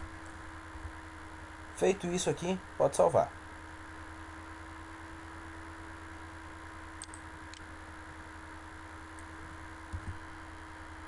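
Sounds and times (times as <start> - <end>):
electrical hum: 0.0 - 11.0
mouse clicks: 7.0 - 7.6.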